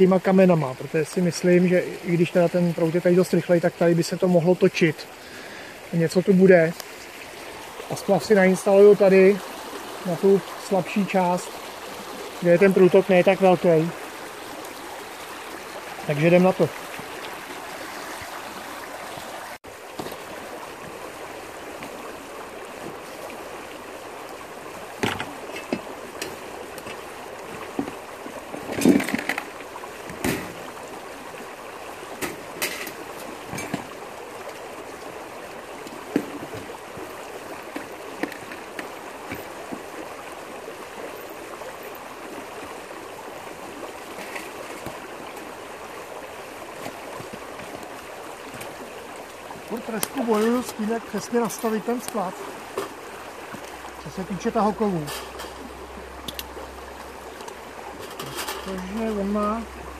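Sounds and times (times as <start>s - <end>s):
stream rushing over rocks: 0.0s - 59.9s
short knocks and clatters: 25.0s - 30.6s.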